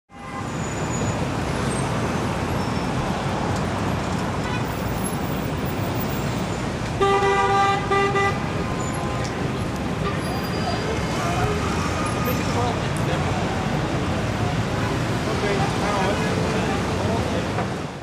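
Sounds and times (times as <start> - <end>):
city street traffic: 0.1 - 18.0
vehicle horn honking: 7.0 - 9.3.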